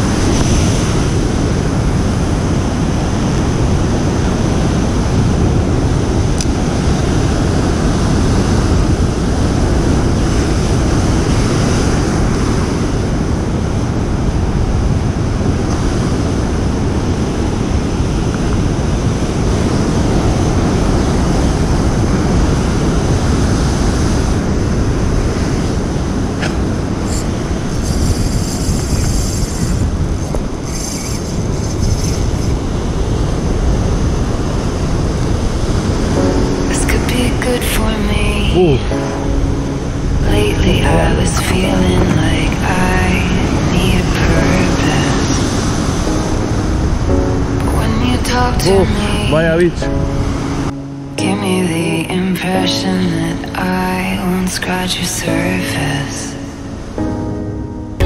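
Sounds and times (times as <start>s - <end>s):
wind rumbling on microphone: 0.0s - 50.9s
fishing reel ticking: 27.1s - 32.5s.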